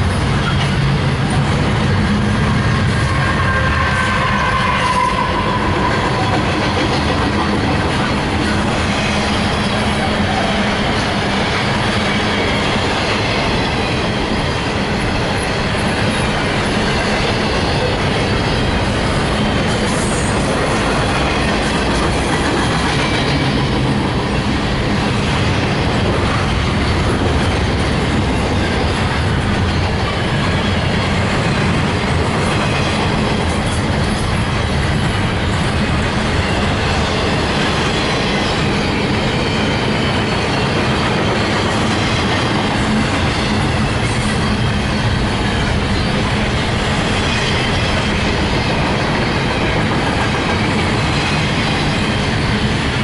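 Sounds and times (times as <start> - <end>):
train wheels clattering on rails: 0.0 - 53.0.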